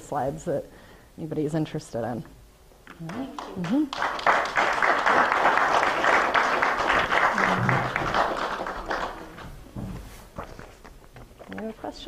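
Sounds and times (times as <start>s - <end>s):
audience applauding: 3.0s - 9.7s.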